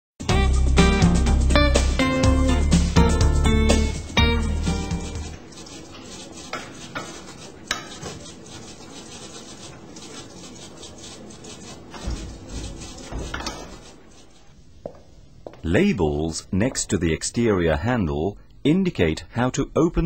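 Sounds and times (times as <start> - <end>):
strummed guitar music: 0.2 - 5.4.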